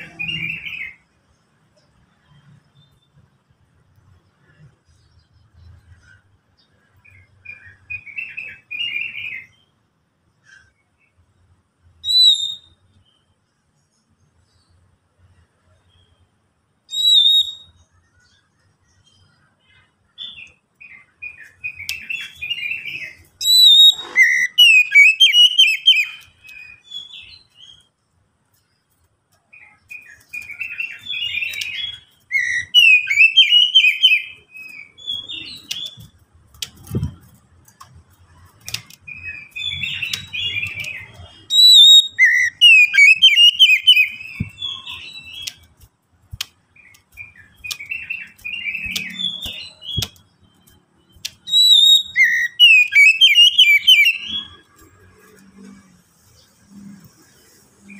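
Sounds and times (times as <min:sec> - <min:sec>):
bird singing high phrases: 0:00.0 - 0:03.4, 0:04.0 - 0:09.8, 0:12.0 - 0:14.8, 0:15.6 - 0:57.9.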